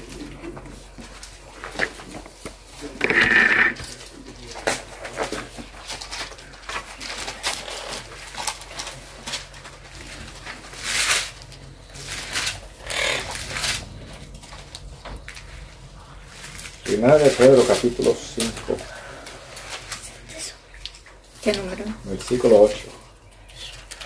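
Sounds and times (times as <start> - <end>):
faint low hum: 0.0 - 24.0
pages rustling: 1.0 - 15.5.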